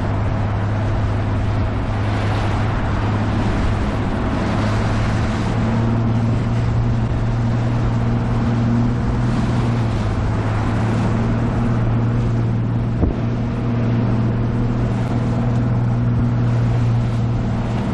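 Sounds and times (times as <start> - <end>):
outboard motor droning: 0.0 - 17.9
water and wind rushing: 0.0 - 17.9
short thump: 13.0 - 13.2.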